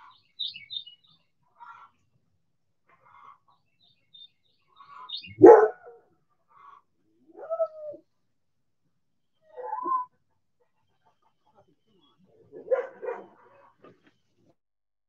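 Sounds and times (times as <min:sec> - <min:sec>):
hens clucking softly: 0:01.4 - 0:02.2, 0:02.9 - 0:03.7, 0:06.3 - 0:07.0, 0:10.1 - 0:14.2.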